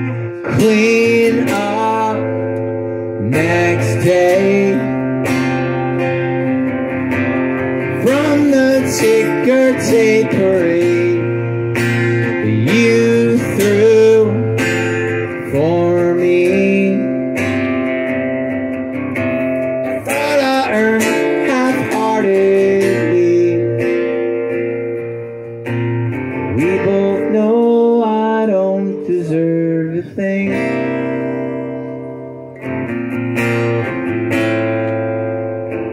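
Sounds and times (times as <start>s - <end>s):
man singing: 0.0s - 6.0s, 7.9s - 17.7s, 19.8s - 24.5s, 26.5s - 31.4s
acoustic guitar strumming: 0.0s - 35.9s.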